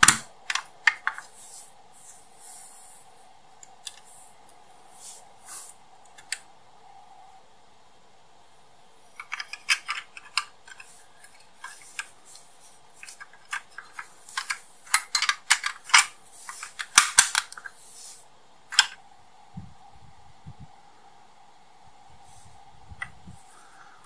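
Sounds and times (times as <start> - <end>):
model car parts clicking: 9.2 - 12.1, 13.0 - 17.7.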